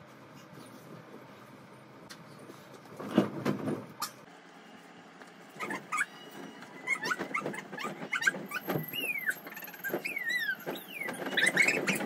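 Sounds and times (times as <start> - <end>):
rustles and knocks: 0.4 - 4.0
dog yipping and whining: 5.6 - 12.0.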